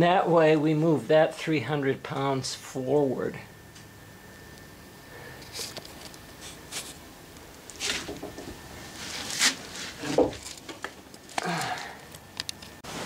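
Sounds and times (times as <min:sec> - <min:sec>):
rustles and knocks of handling: 0:07.7 - 0:13.0.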